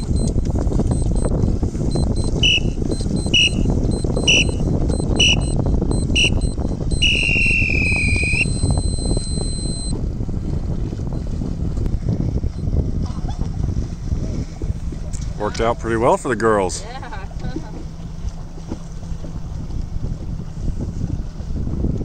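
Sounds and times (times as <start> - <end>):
short beeps: 0.0 - 1.3, 1.9 - 9.9
wind noise on microphone: 0.0 - 16.1, 16.9 - 22.0
long start tone: 0.9 - 1.3, 1.9 - 9.9.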